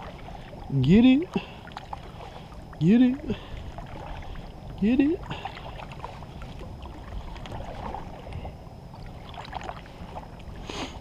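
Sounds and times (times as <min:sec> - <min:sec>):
low steady rumble: 0:00.0 - 0:11.0
paddle splashes: 0:00.0 - 0:11.0
water lapping against hull: 0:00.0 - 0:11.0.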